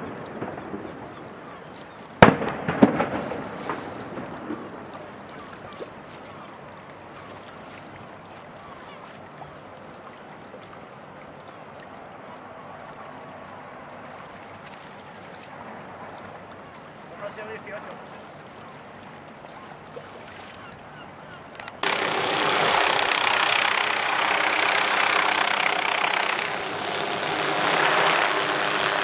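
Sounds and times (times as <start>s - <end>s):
open-air hiss: 1.3s - 5.3s, 21.8s - 29.0s.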